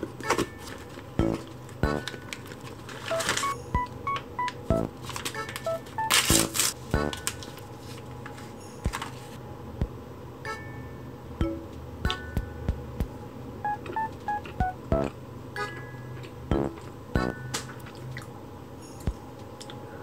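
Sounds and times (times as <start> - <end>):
plinking keyboard music: 0.3 - 2.3, 3.1 - 7.4, 10.5 - 17.6
soft ticking beats: 1.2 - 2.2, 3.1 - 5.0, 5.6 - 7.3, 9.8 - 10.0, 11.4 - 17.5, 19.0 - 19.3.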